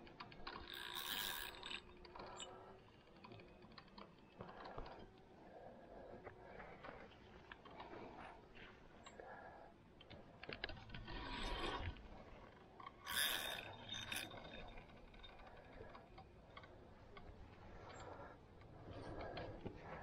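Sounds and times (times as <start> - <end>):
fishing reel clicking and scraping: 0.0 - 5.9, 10.4 - 19.7.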